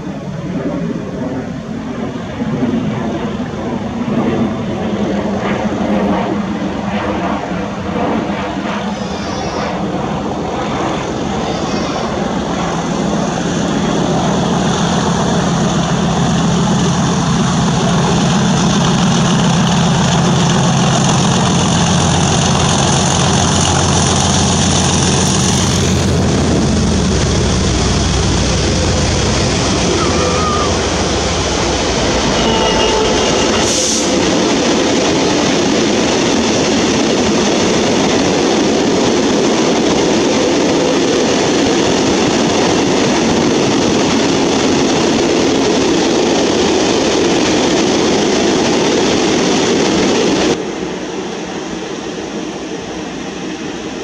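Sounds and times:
diesel locomotive engine: 0.0s - 54.0s
wagons rumbling by: 15.0s - 36.6s
turbocharger whistle: 29.7s - 34.6s.

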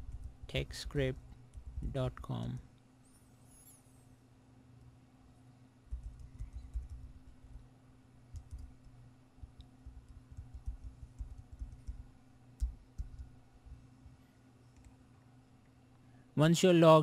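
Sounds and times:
faint low hum: 0.0s - 17.0s
typing on keyboard: 5.9s - 7.2s, 8.3s - 9.0s, 9.8s - 13.3s.

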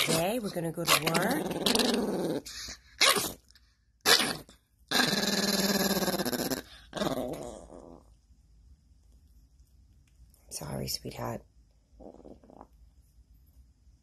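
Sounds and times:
small dog growling: 0.0s - 3.4s, 4.0s - 8.2s, 12.0s - 12.8s.

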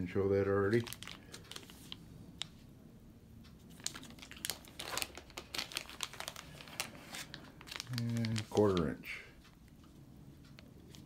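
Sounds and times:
plastic sleeve crinkling: 0.6s - 2.6s, 3.6s - 9.2s.

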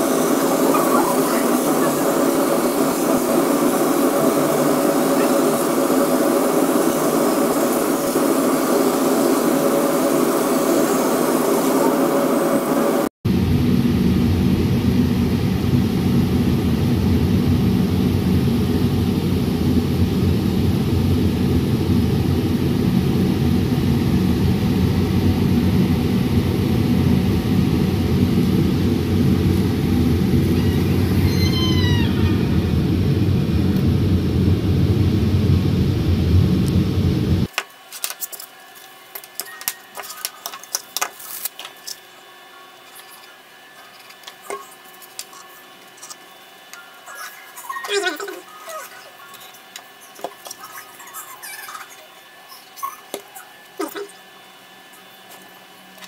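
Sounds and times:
laser cutter whirring: 0.0s - 37.9s, 38.5s - 56.0s
brief high cry: 30.6s - 32.6s
clicks and rubbing of handled pieces: 37.5s - 42.0s.

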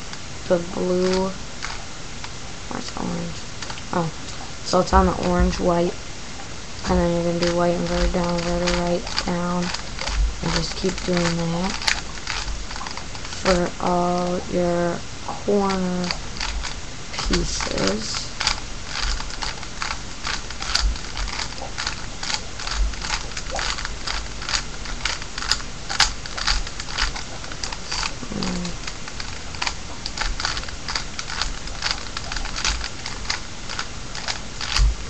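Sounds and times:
puzzle cube layers clicking: 6.9s - 14.6s, 15.6s - 34.9s.

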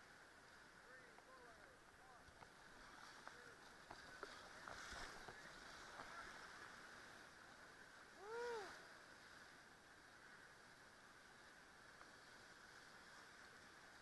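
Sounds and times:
rush of white-water rapids: 0.0s - 14.0s
person shouting: 8.2s - 8.8s.

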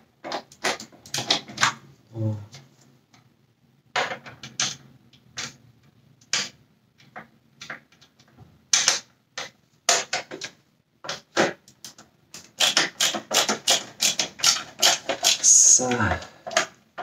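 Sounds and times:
screwdriver clicking on plastic: 11.7s - 15.4s.

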